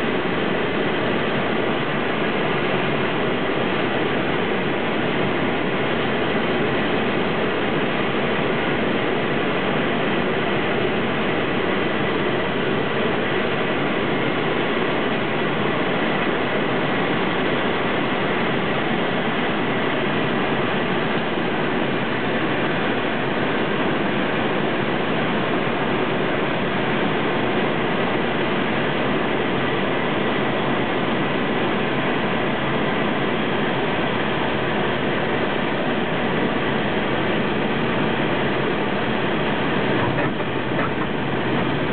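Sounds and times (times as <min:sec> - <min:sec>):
aircraft engine and propeller drone: 0:00.0 - 0:41.9
airflow noise: 0:34.4 - 0:41.9.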